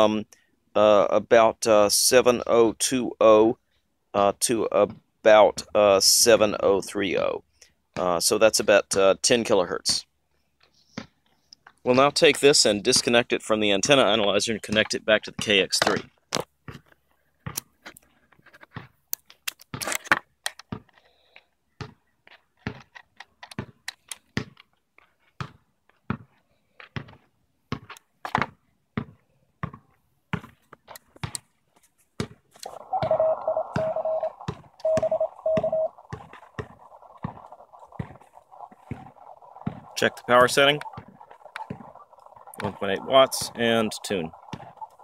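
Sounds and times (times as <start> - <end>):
morse tone dashes: 32.6 - 45.0
radio band hiss: 32.6 - 45.0.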